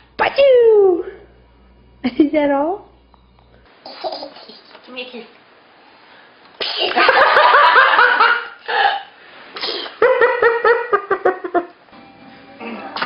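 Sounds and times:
person sneezing: 6.6 - 7.0, 8.7 - 10.0
rhythmic laughter: 10.0 - 11.7.

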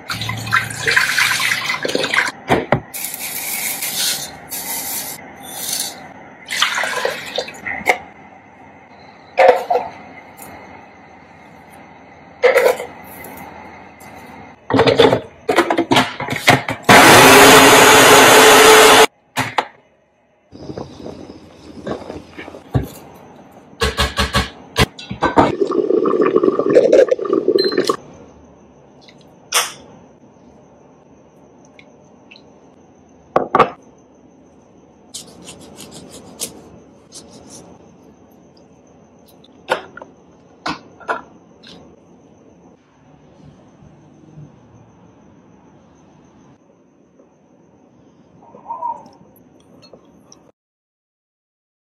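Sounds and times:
food processor motor running: 16.9 - 19.1.

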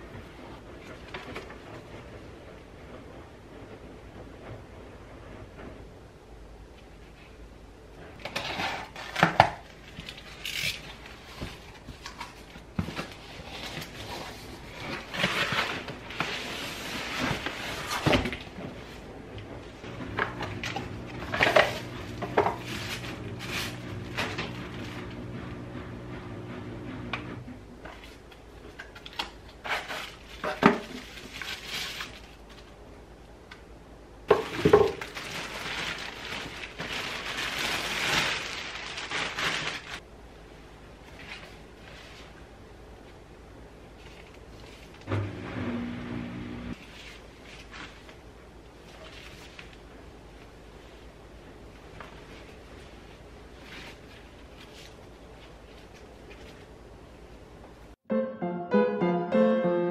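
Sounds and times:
steady low hum: 16.9 - 28.8
plastic wrapping crinkling: 28.0 - 32.8, 34.3 - 40.0.

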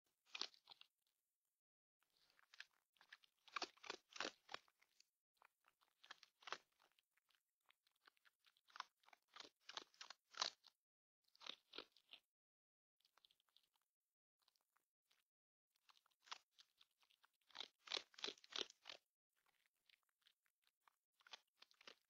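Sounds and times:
fox crunching dry food: 0.3 - 0.9, 2.1 - 10.7, 15.8 - 22.0.

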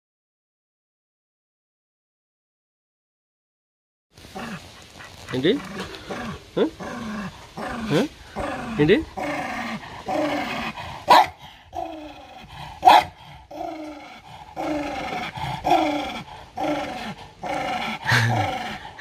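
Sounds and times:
dog growling: 4.3 - 19.0
dog barking sharply: 11.1 - 11.4, 12.8 - 13.2.

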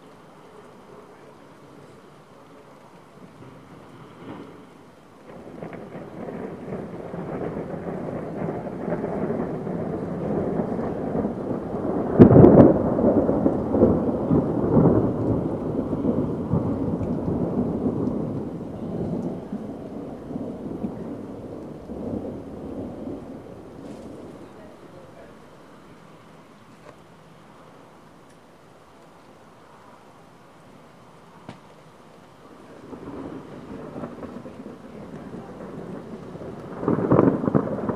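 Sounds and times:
thunder rumbling: 0.0 - 37.9
loud thunder crack: 3.4 - 25.2, 32.7 - 37.9.

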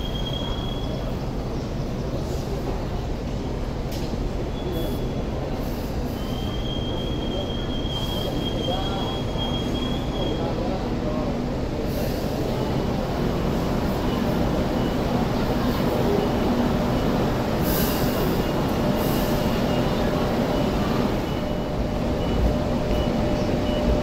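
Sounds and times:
train wheels squealing: 0.0 - 1.4, 4.4 - 10.8
low rumble of train: 0.0 - 24.0.

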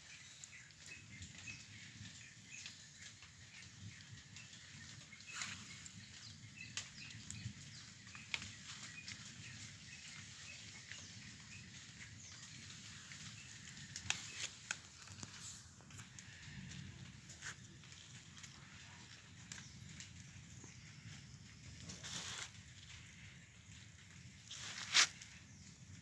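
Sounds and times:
light rain pattering: 0.0 - 26.0.

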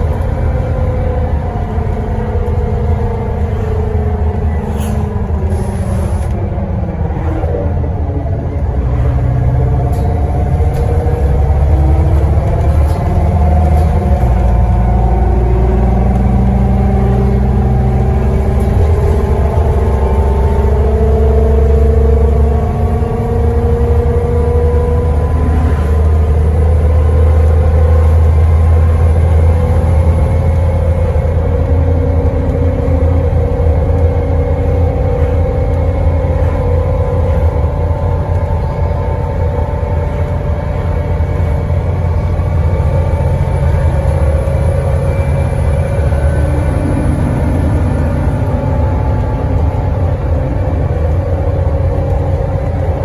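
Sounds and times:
bus engine under load: 0.0 - 53.0
differential whine: 0.0 - 53.0.

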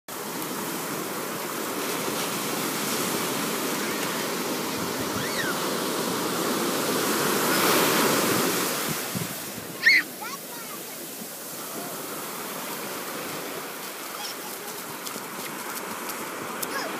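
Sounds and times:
ocean waves washing in: 0.1 - 16.9
child shouting: 9.8 - 10.8, 14.2 - 14.8.

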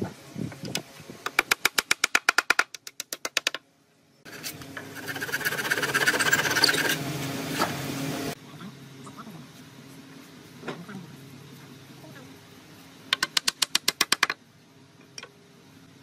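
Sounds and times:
handsaw rasping through wood: 5.0 - 7.0.

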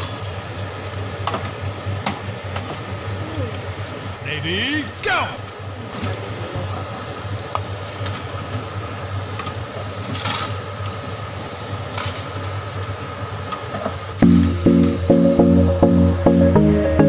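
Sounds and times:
low machine hum: 0.0 - 17.0
music with steady beat: 14.2 - 17.0.

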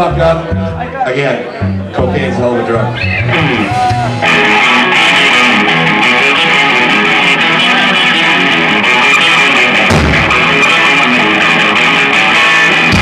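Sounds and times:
electric guitar: 0.0 - 13.0
rockabilly band playing: 0.0 - 13.0
upright bass: 0.0 - 13.0
low thump: 9.9 - 10.4.

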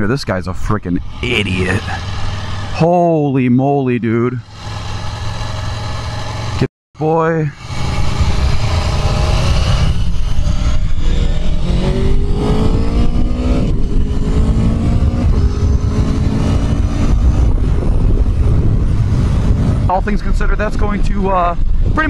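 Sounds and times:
motorcycle engine accelerating: 1.0 - 3.0, 4.4 - 6.7, 7.6 - 22.0
wind noise: 7.6 - 22.0.

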